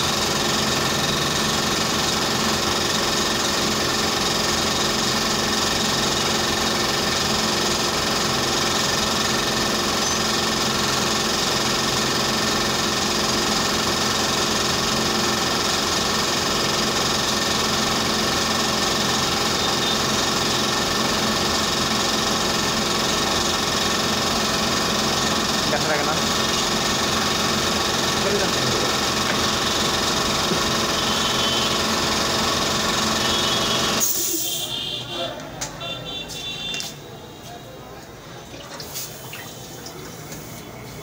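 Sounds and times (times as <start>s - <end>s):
machine hum: 22.2s - 34.0s.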